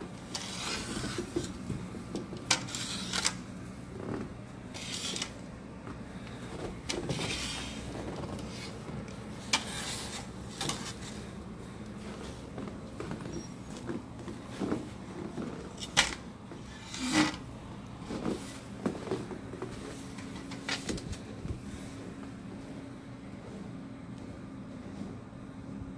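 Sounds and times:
shovel scraping snow on wood: 0.3 - 1.6, 4.8 - 5.3, 7.1 - 8.8, 9.5 - 11.2.

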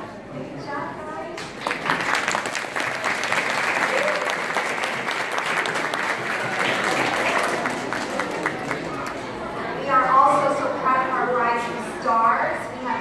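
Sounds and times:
audience applauding: 1.6 - 9.2.

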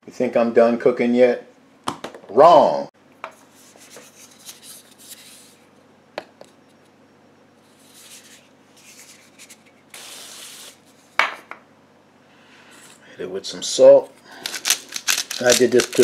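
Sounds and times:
cooking spray hissing: 9.9 - 10.8.

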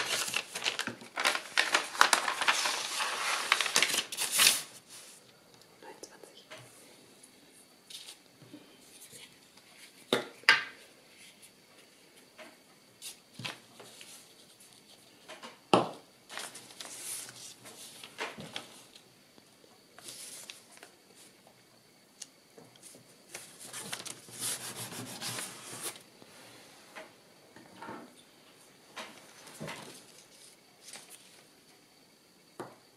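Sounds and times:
paper rustling and rubbing: 0.0 - 5.2, 16.3 - 19.0, 23.3 - 26.0.

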